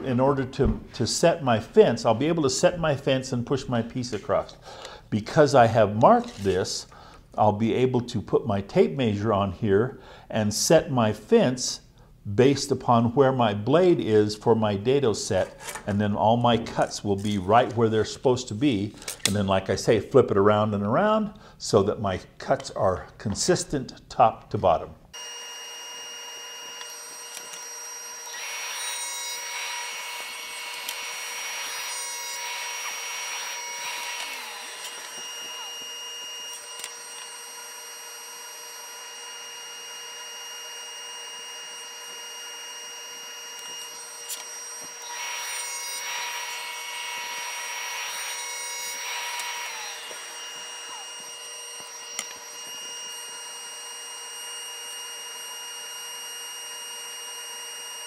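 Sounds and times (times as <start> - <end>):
table saw cutting wood: 5.5 - 6.8, 25.2 - 58.0.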